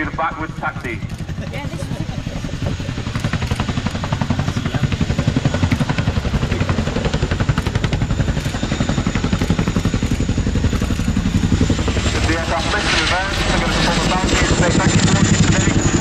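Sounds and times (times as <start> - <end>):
helicopter rotors chopping: 0.0 - 16.0
high turbine whine: 0.0 - 16.0.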